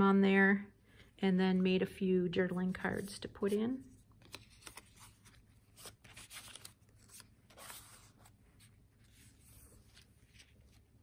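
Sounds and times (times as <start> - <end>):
paper rustling and scraping: 2.9 - 11.0.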